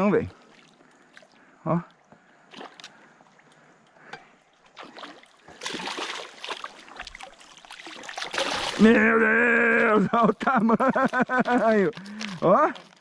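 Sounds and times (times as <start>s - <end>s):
fish splashing in water: 4.7s - 9.0s.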